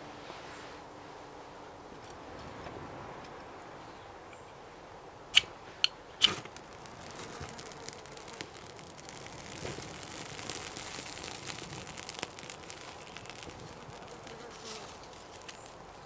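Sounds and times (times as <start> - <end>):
fire steel scraping: 6.2 - 16.0
grass tinder crackling: 6.2 - 16.0.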